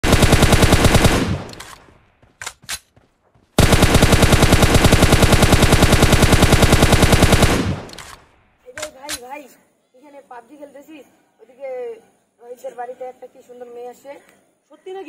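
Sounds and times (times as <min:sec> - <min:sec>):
video game automatic gunfire: 0:00.0 - 0:02.7, 0:03.6 - 0:08.3.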